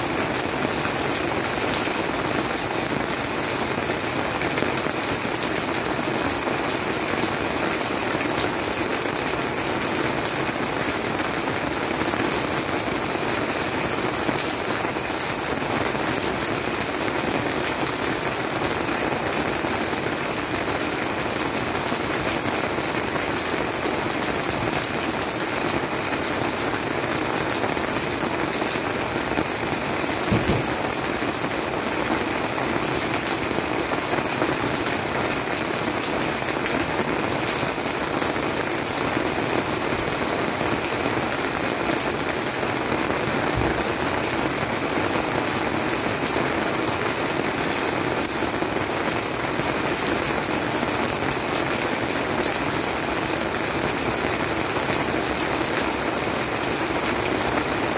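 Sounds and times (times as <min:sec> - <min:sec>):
rain pattering on plants: 0:00.0 - 0:57.9
dull knocks: 0:30.3 - 0:30.7.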